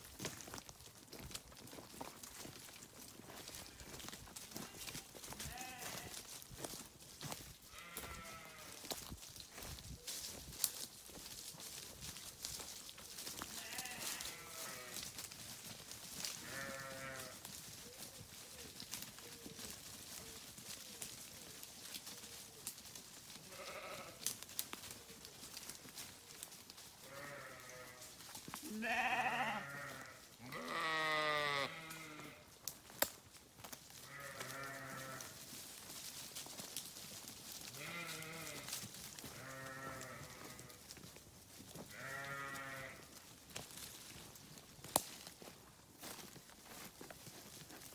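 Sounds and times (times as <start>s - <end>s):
sheep bleating: 4.6s - 6.2s, 7.7s - 8.8s, 13.4s - 15.1s, 16.4s - 17.4s, 23.5s - 24.3s, 27.0s - 32.5s, 34.0s - 35.4s, 37.7s - 40.8s, 41.9s - 43.1s.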